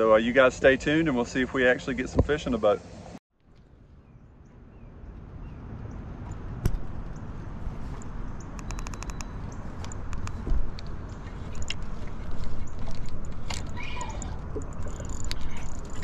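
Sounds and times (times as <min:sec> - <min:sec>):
fishing reel clicks: 0:14.5 - 0:16.0.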